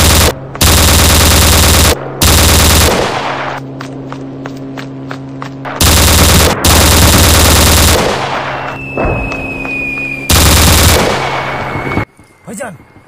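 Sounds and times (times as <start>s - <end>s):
machine-gun fire bursts: 0.0s - 3.6s, 5.7s - 8.7s, 10.3s - 11.6s.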